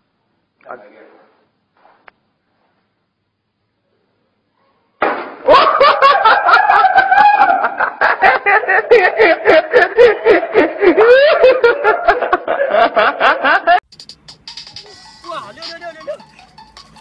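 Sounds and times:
people laughing hard: 0:05.5 - 0:13.8.

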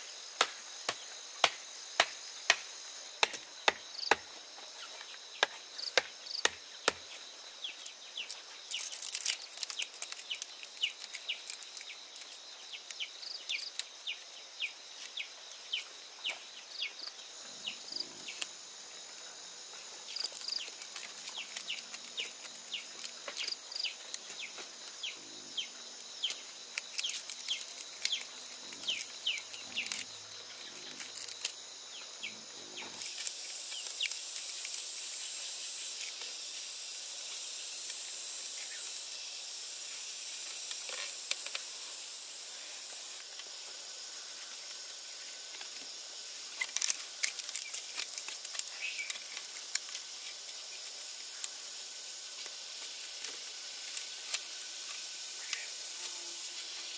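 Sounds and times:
high insect drone: 0:00.0 - 0:56.9.

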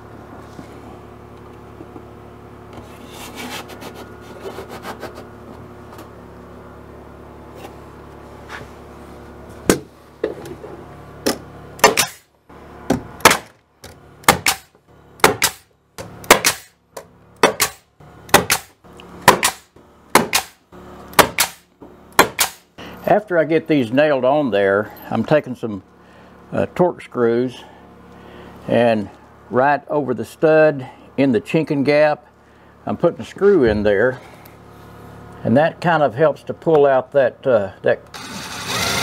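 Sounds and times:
nail gun firing into wood: 0:11.3 - 0:12.3, 0:13.2 - 0:13.6, 0:14.2 - 0:16.8, 0:17.4 - 0:22.7.

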